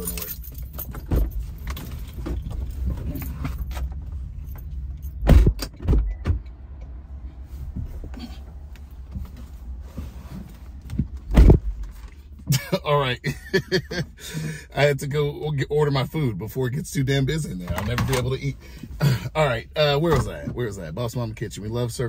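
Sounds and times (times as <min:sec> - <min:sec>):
steady low rumble: 0:00.0 - 0:22.0
loud thumps: 0:05.2 - 0:06.4, 0:11.0 - 0:11.7
rustling and handling noises: 0:07.4 - 0:12.3.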